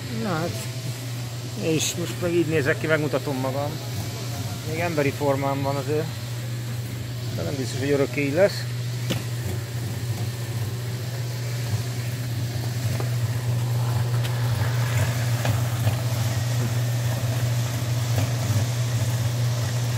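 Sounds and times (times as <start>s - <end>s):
low engine hum: 8.6s - 19.9s.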